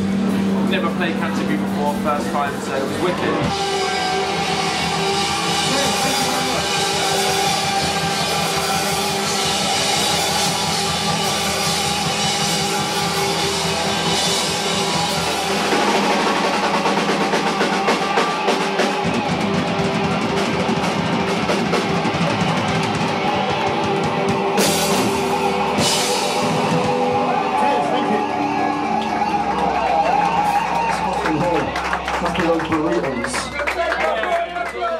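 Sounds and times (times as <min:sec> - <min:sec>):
electric guitar: 0:00.0 - 0:32.3
drum kit: 0:00.0 - 0:33.1
rock band playing: 0:00.0 - 0:34.5.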